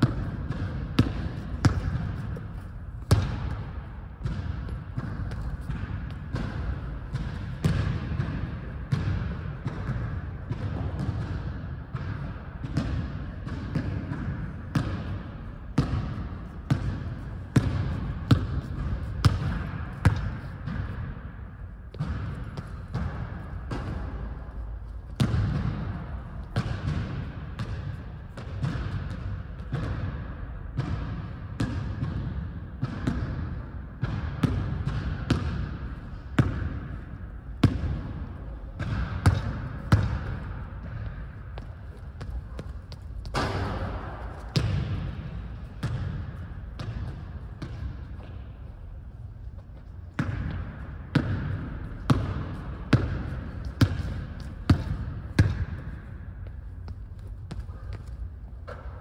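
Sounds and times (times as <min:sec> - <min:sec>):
basketball bouncing on hardwood floor: 0:00.0 - 0:15.2, 0:15.8 - 0:21.0, 0:21.9 - 0:24.3, 0:37.6 - 0:48.4, 0:50.2 - 0:58.9.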